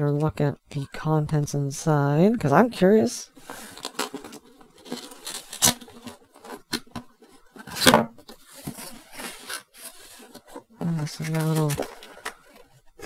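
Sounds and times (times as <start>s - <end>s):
cardboard rustling and scraping: 3.4s - 13.0s.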